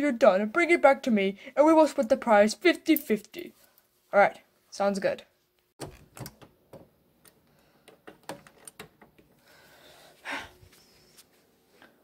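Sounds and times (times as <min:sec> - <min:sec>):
doorknob clicks and knocks: 0:05.8 - 0:06.9.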